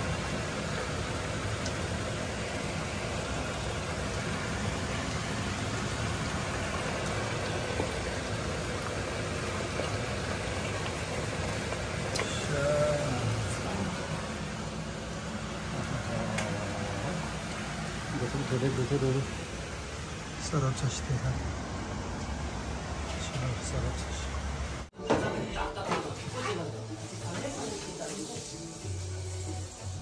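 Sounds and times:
kitchen exhaust fan humming: 0.0 - 30.0.

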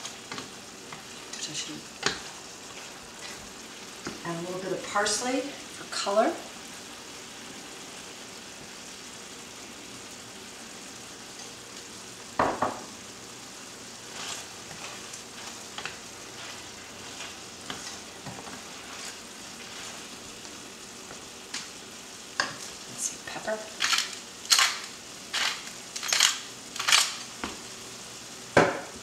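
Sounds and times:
utensil stirring a pan: 0.0 - 7.9, 13.7 - 27.6
stew sizzling in a pan: 0.0 - 29.0.

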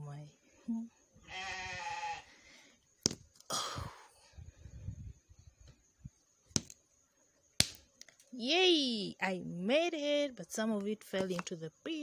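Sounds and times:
nut shell cracking: 6.6 - 6.8.

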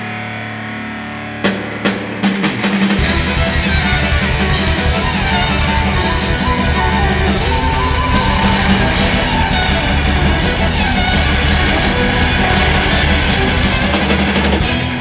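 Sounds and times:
bass: 0.0 - 15.0
distorted electric guitar: 0.0 - 15.0
drums: 0.0 - 15.0
violin melody: 3.0 - 15.0.

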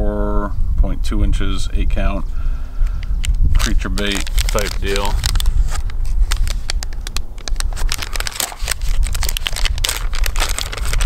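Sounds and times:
steady low rumble: 0.0 - 11.0
plastic bag crinkling: 3.2 - 11.0.

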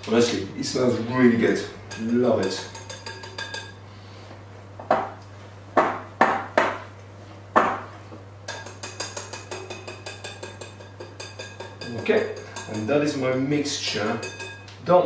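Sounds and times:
utensil clinking on glass bowl: 1.9 - 3.8, 8.5 - 14.8.

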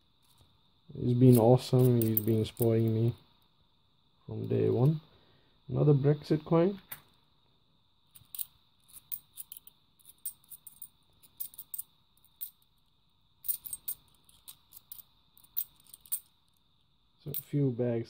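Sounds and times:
faint high whine: 0.0 - 18.0
coins clinking in the hand: 1.2 - 2.9, 8.2 - 12.7, 13.4 - 16.4.

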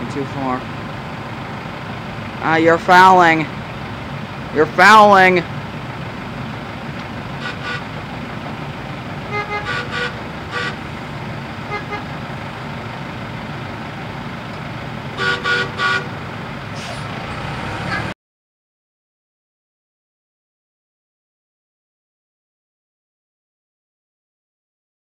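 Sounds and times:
low rumble of engines: 0.0 - 18.2
short horn toots: 7.4 - 7.9, 9.3 - 10.8, 11.7 - 12.1, 15.2 - 16.2.

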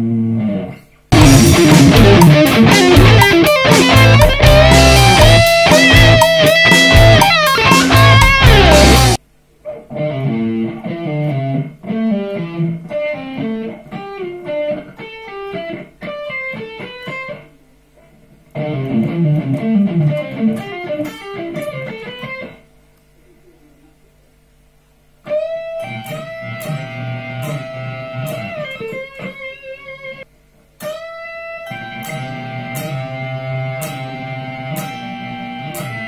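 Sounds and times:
electric guitar lead phrase: 0.2 - 17.6, 18.5 - 22.6, 25.3 - 36.0
loud rock music: 1.1 - 9.2.

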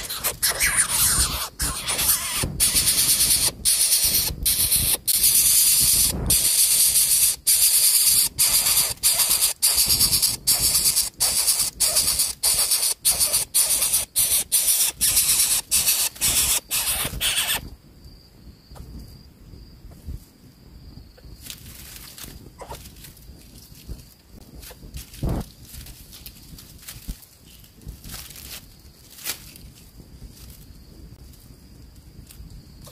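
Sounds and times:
nestling hissing begging calls: 0.0 - 17.7.

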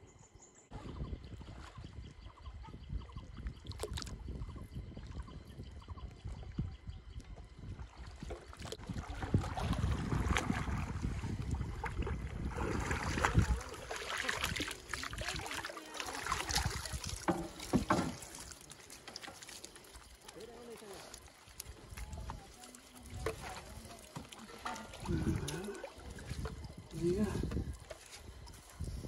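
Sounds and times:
water sloshing and splashing: 1.2 - 29.0
wet waterweed rustling: 8.2 - 29.0.

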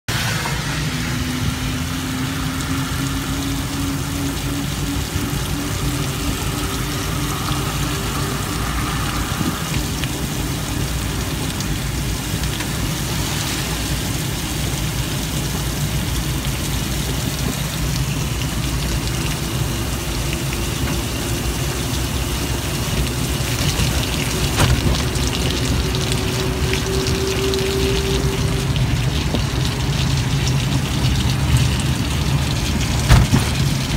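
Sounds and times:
low road rumble: 0.0 - 33.9
faint rising whine: 0.1 - 11.8
tyres hissing on wet road: 0.1 - 33.9.

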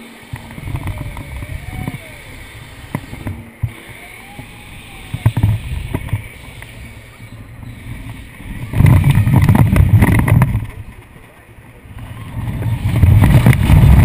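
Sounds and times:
ride car rattling: 0.0 - 14.0
ride car rumbling on track: 0.0 - 14.0.

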